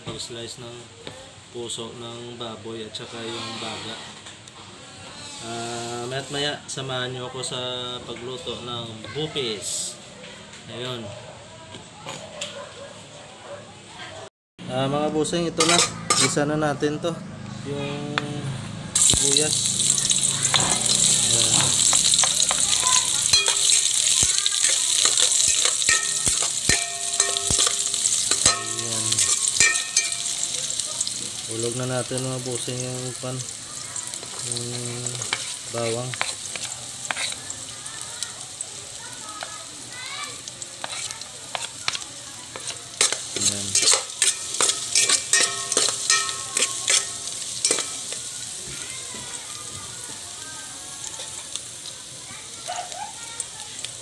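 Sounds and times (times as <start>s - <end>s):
onions sizzling in hot oil: 5.2s - 7.2s, 15.6s - 16.4s, 19.0s - 54.0s
metal utensil clinking on pot: 15.6s - 16.4s, 20.5s - 30.8s, 40.8s - 48.2s.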